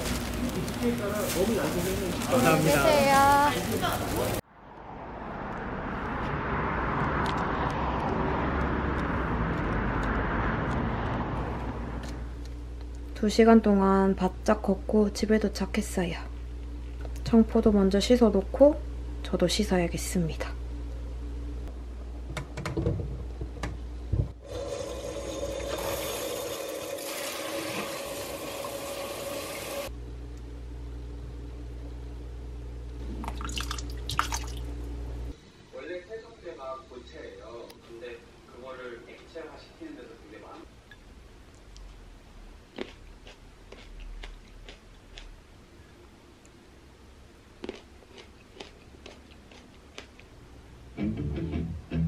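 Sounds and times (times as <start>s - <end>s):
street traffic: 3.0s - 12.8s.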